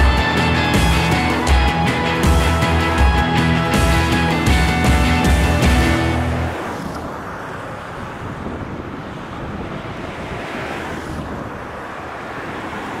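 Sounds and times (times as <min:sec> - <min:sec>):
wind buffeting microphone: 0:06.0 - 0:13.0.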